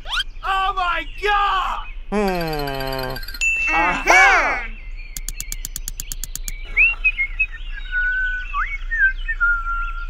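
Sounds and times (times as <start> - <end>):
birds chirping and whistling: 0.0 - 10.0
quick light ticks: 5.2 - 6.6.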